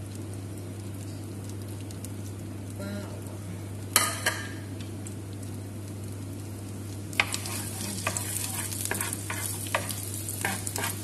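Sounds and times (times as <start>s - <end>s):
butter sizzling in a frying pan: 3.7s - 11.0s
spatula knocking and scraping pan: 7.2s - 11.0s.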